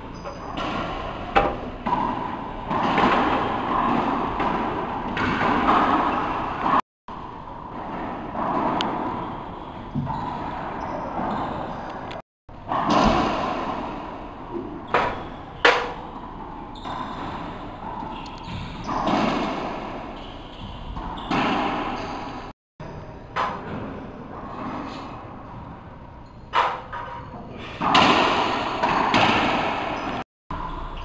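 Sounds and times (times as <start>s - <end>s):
racquetball hits echoing: 0.1s - 6.8s, 7.8s - 11.7s, 12.6s - 22.5s, 27.8s - 30.8s.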